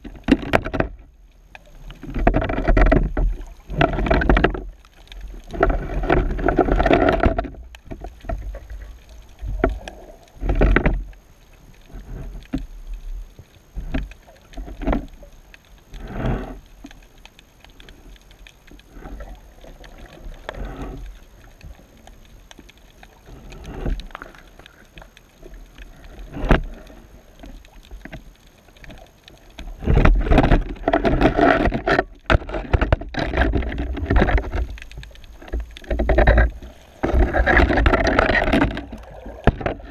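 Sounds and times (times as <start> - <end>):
muffled underwater sloshing: 0.0 - 39.9.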